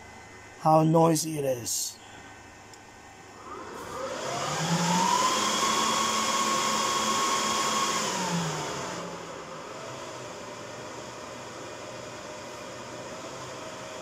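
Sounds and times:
server cooling fans whirring: 0.0 - 14.0.

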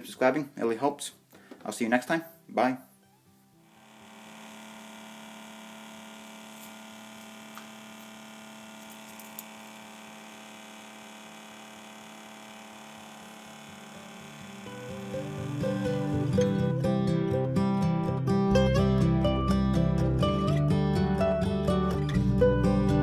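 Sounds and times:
small motor humming: 3.6 - 16.8.

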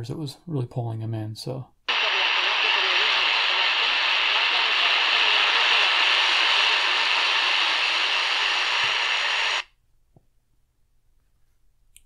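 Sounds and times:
radio static hissing: 1.9 - 9.7.

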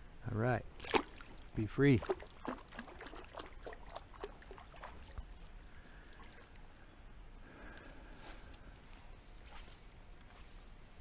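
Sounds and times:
water splashing and dripping: 0.8 - 6.6.

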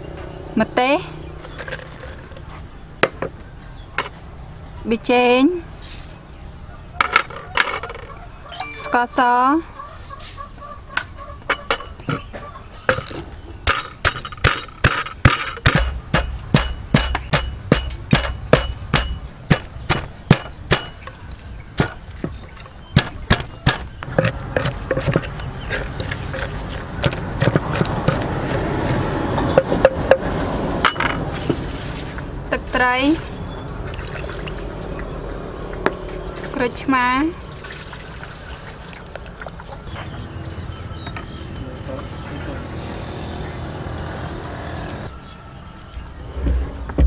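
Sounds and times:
pestle pounding in wooden mortar: 13.0 - 21.1, 21.8 - 30.4.

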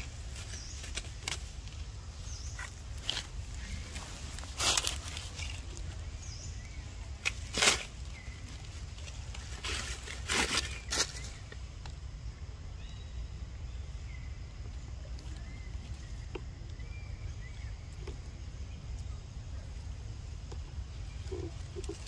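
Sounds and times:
dry leaves rustling and crackling: 0.0 - 11.7.

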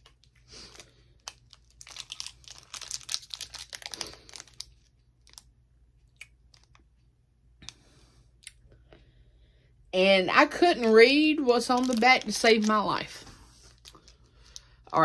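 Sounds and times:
plastic wrapper crinkling and tearing: 0.0 - 7.0, 10.8 - 15.0.

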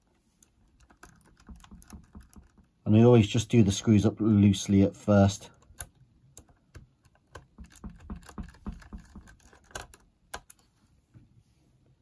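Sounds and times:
screwdriver turning screws: 5.6 - 10.6.

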